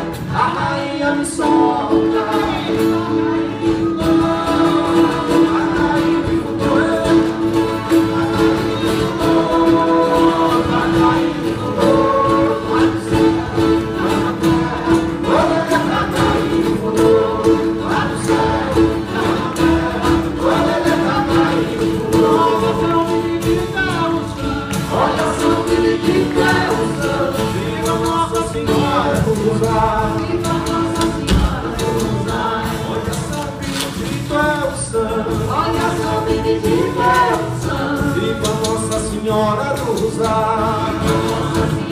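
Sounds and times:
acoustic folk band playing: 0:00.0 - 0:41.9
voices singing together: 0:00.0 - 0:41.9.

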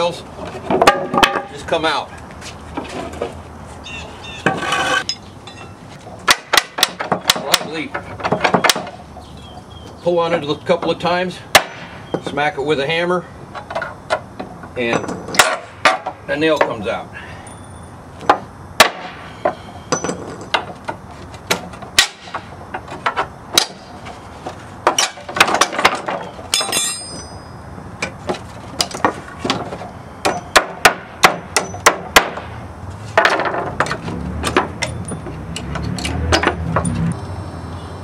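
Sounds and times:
hammer striking wooden pallet: 0:00.7 - 0:01.5, 0:06.2 - 0:09.0, 0:11.5 - 0:11.9, 0:15.3 - 0:16.2, 0:18.3 - 0:20.8, 0:21.5 - 0:23.9, 0:24.8 - 0:27.2, 0:30.2 - 0:32.5
scraping sound: 0:04.4 - 0:05.1
metallic ringing: 0:04.8 - 0:05.8, 0:17.4 - 0:18.0, 0:26.5 - 0:27.8.

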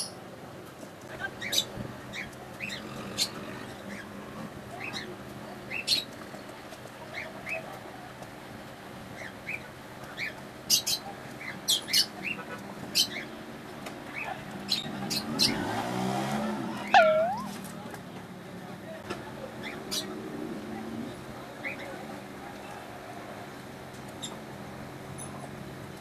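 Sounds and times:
lovebird chirping and squawking: 0:14.1 - 0:15.6, 0:16.8 - 0:17.6.

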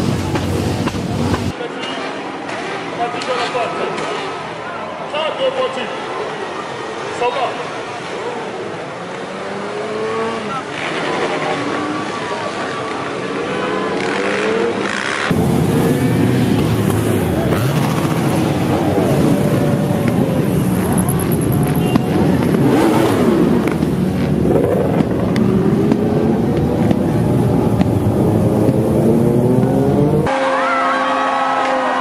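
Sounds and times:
motorcycles revving past: 0:09.0 - 0:30.4.

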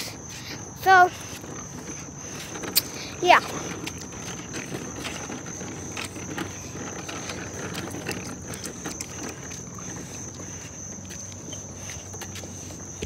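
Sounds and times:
bicycle rumbling and rattling: 0:00.0 - 0:13.0.

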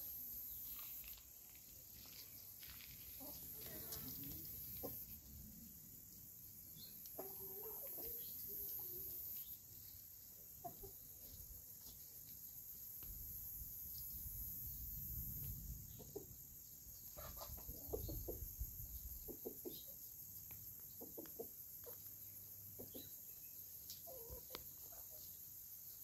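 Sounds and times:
chickens clucking: 0:03.2 - 0:05.2, 0:07.0 - 0:09.4, 0:10.6 - 0:11.4, 0:17.0 - 0:23.2, 0:23.9 - 0:25.4.

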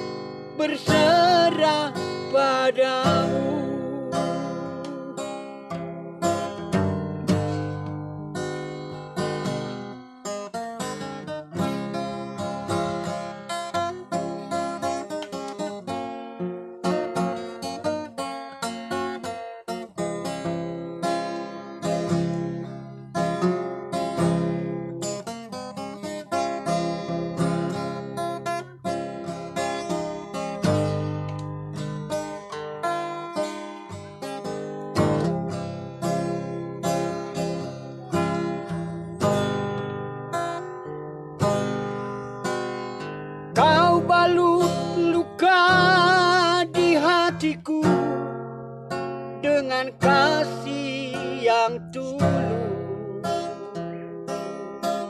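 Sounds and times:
fingerpicked acoustic guitar: 0:00.0 - 0:55.0
elderly man singing with vibrato: 0:00.6 - 0:05.2, 0:43.6 - 0:48.3, 0:49.4 - 0:53.5.

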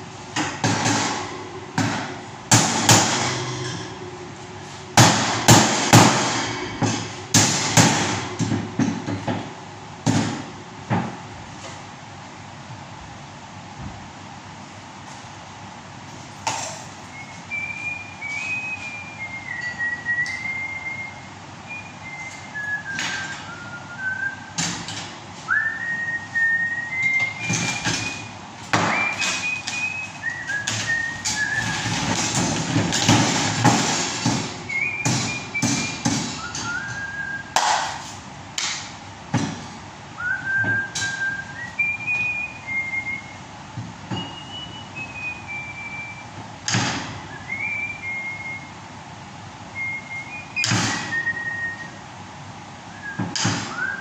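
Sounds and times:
person whistling a tune: 0:17.1 - 0:24.6, 0:25.5 - 0:28.3, 0:28.9 - 0:32.2, 0:34.7 - 0:37.6, 0:40.2 - 0:43.4, 0:44.2 - 0:46.3, 0:47.2 - 0:48.8, 0:49.8 - 0:52.0, 0:52.9 - 0:54.0.

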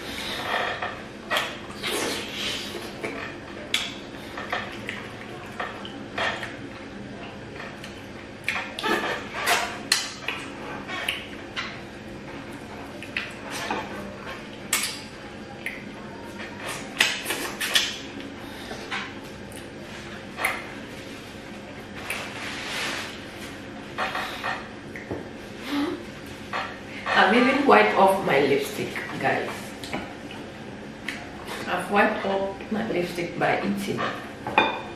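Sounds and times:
people chewing and lip-smacking: 0:00.8 - 0:22.4, 0:23.9 - 0:26.8, 0:29.7 - 0:31.7.

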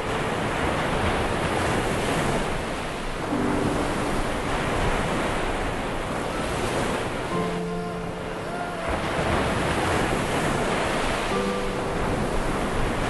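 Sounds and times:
ocean surf rushing: 0:00.0 - 0:13.0
wind on microphone: 0:00.0 - 0:13.0.

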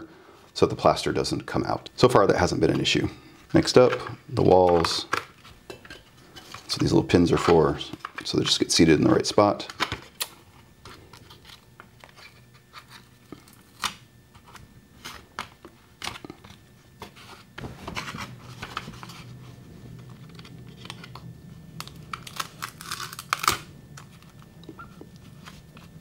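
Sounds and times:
tape tearing off roll: 0:21.8 - 0:24.4.

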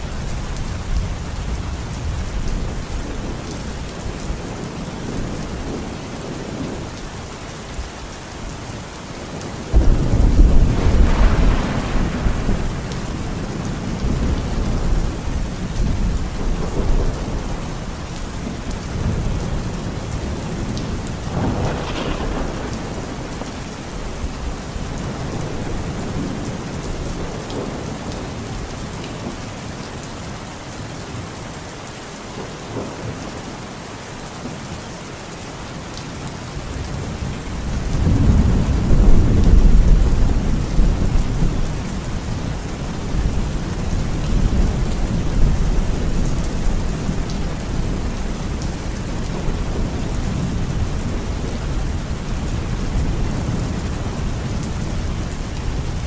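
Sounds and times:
heavy rain pouring: 0:00.0 - 0:56.0
thunder rumbling: 0:09.7 - 0:28.6, 0:36.8 - 0:56.0.

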